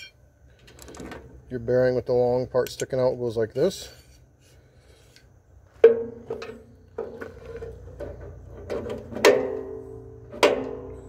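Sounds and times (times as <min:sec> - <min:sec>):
metallic clanks on steel housing: 0:05.8 - 0:11.0.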